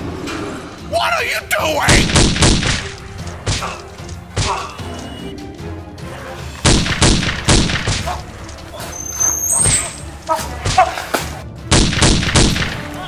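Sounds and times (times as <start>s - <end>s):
background music: 0.0s - 13.0s
impact thuds: 6.6s - 8.2s.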